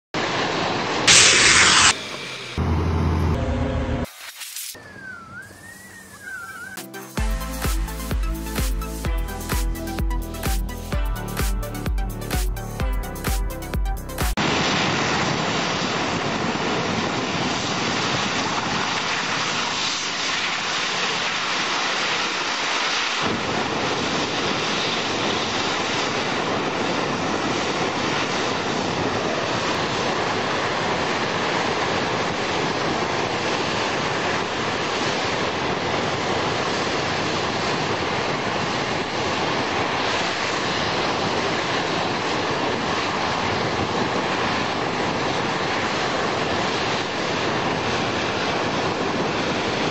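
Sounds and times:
gas jet and water hoses rushing: 0.2s - 9.7s, 14.4s - 49.9s
deep low rumble: 1.1s - 4.1s.

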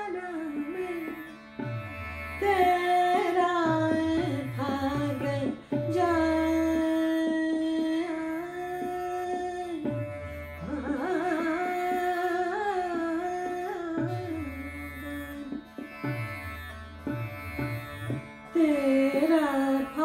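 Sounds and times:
woman singing: 0.0s - 1.2s, 2.4s - 10.0s, 10.6s - 15.5s, 18.6s - 20.0s.

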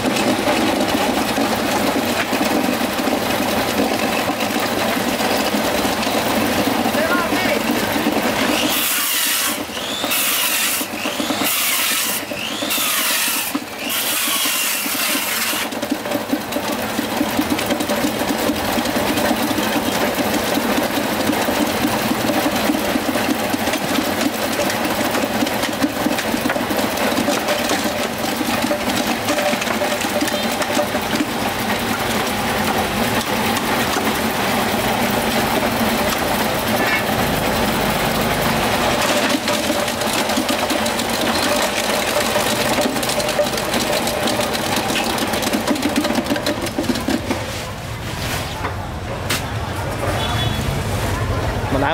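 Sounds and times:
small motor running: 4.9s - 20.4s.

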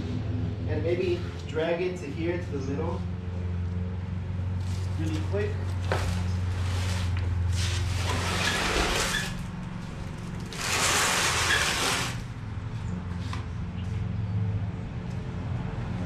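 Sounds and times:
steady low hum: 0.0s - 8.4s
board scraping on concrete floor: 5.8s - 12.3s.

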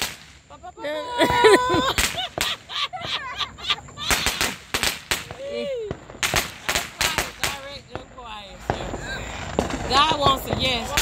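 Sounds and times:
fireworks cracking and popping: 0.0s - 11.0s
excited voices: 0.5s - 4.6s, 5.2s - 7.6s.

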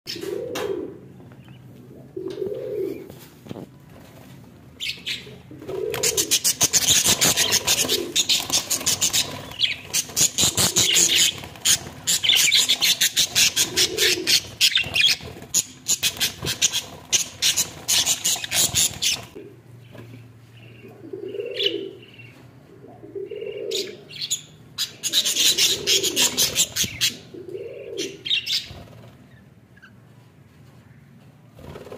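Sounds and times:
low bird coos: 0.1s - 1.2s, 1.9s - 3.2s, 5.1s - 6.6s, 7.2s - 8.4s, 10.4s - 11.4s, 13.4s - 14.4s, 20.8s - 24.1s, 25.1s - 28.3s
bird chicks chirping: 4.8s - 22.4s, 23.2s - 30.0s.

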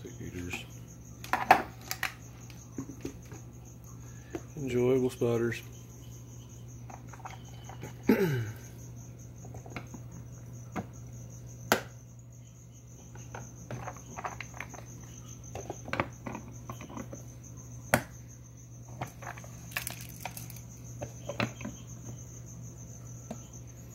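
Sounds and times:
crickets chirping: 0.0s - 23.9s
small rattles: 0.2s - 3.7s, 6.6s - 10.8s, 13.0s - 17.4s, 18.8s - 22.2s.

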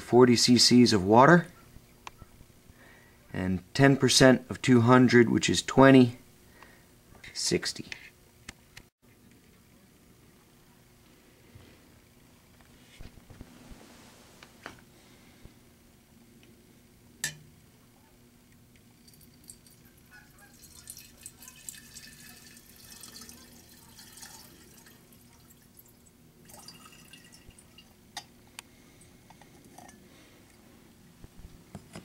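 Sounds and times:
liquid trickling and splashing: 19.0s - 19.8s, 20.5s - 28.0s.

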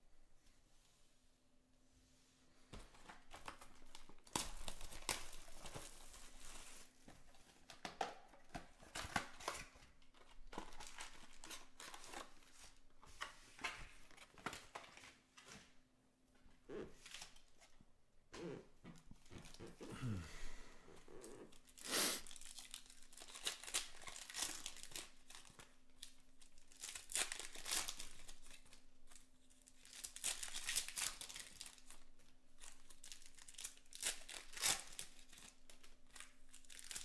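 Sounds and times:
foil packs rustling and crinkling: 2.7s - 15.8s, 21.2s - 37.0s.

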